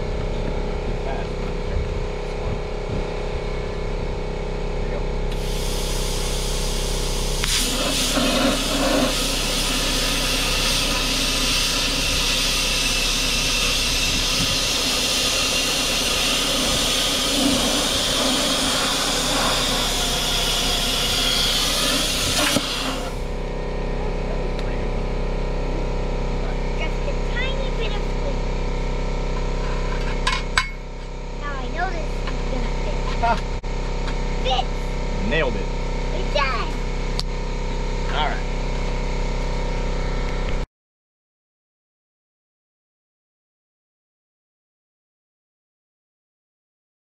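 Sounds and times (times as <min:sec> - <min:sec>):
steady machine hum: 0:00.0 - 0:40.7
high hiss of air: 0:05.3 - 0:23.3
plasma cutting arc hissing: 0:05.3 - 0:23.3.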